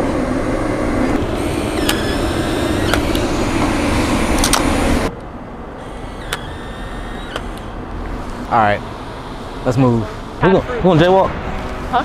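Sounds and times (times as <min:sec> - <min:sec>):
city street traffic rumble: 0:00.0 - 0:12.0
sharp clicks: 0:01.8 - 0:03.3, 0:05.2 - 0:07.7.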